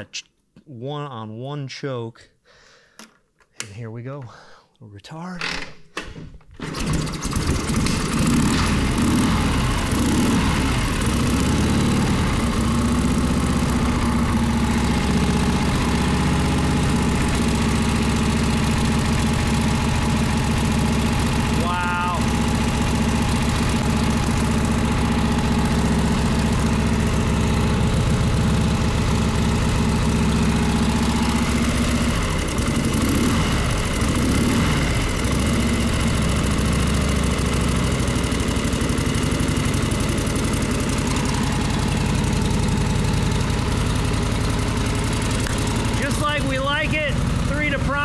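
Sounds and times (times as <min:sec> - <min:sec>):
motorcycle engine idling and revving: 0:06.9 - 0:48.0.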